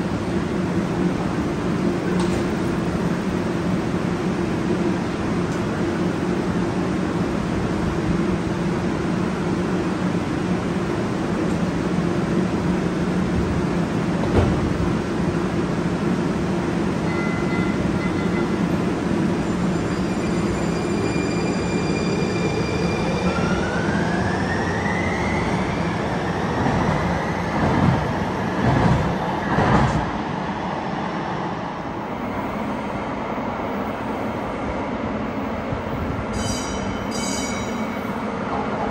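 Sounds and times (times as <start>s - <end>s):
train thumps: 14.2s - 14.9s.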